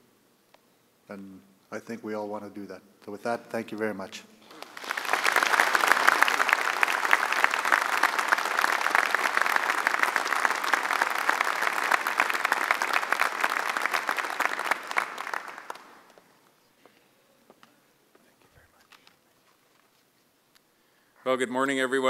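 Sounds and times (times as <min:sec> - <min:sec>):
audience applauding: 0:04.4 - 0:16.3.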